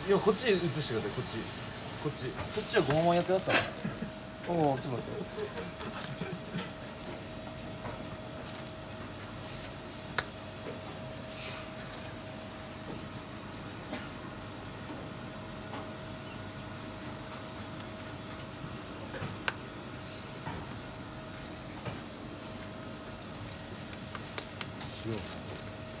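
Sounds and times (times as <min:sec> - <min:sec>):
kitchen equipment humming: 0:00.0 - 0:12.2.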